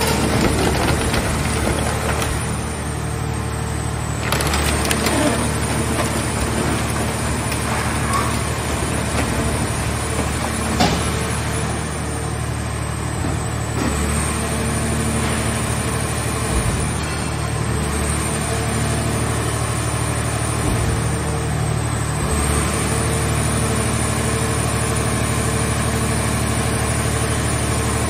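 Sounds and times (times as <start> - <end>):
metal cracking and creaking: 0.0 - 2.8, 4.1 - 11.7
baler engine and hydraulics humming: 0.0 - 28.0.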